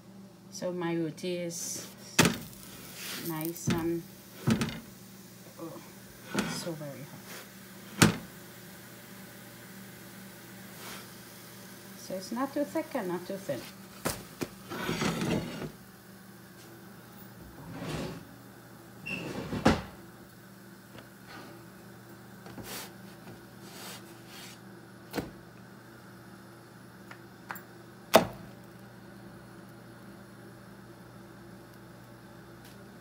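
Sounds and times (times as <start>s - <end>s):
scrapes on iron griddle: 14.6s - 15.8s.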